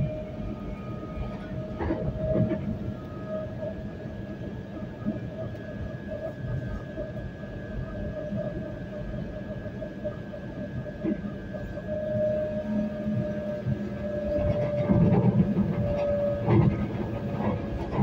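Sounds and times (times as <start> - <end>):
train cabin rumble: 0.0 - 3.6, 10.8 - 18.0.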